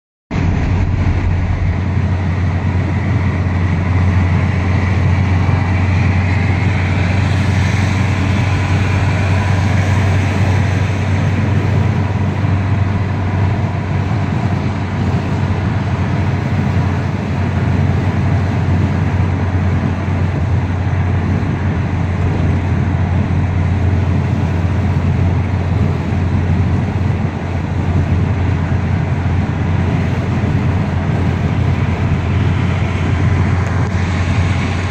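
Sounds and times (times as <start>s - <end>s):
faint rising whine: 0.3s - 16.3s
car engine and tyre drone: 0.3s - 34.9s.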